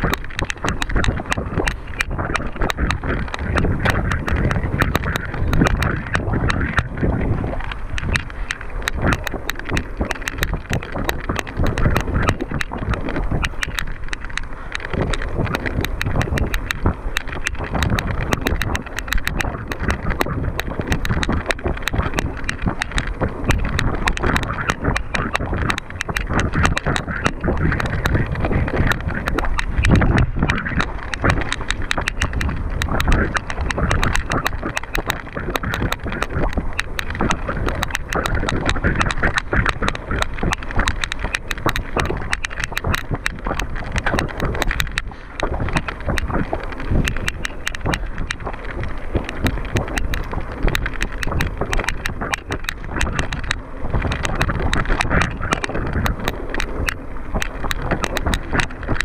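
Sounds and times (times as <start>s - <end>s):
constant rushing noise: 0.0s - 59.0s
mountain bike rattling and clicking: 0.0s - 59.0s.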